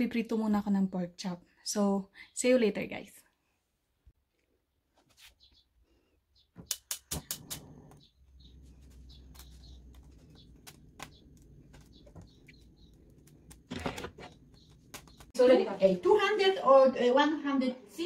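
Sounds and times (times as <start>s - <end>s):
faint bird chirps: 5.3s - 6.6s, 7.9s - 13.6s.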